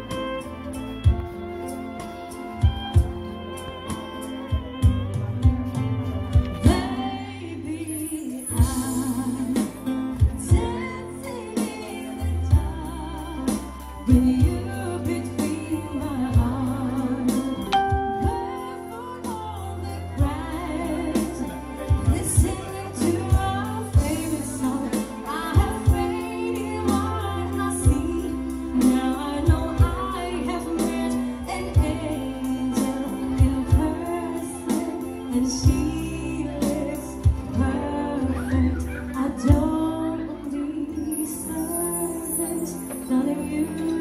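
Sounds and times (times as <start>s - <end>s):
instrumental accompaniment with beat: 0.0s - 44.0s
woman singing into a microphone: 0.0s - 44.0s.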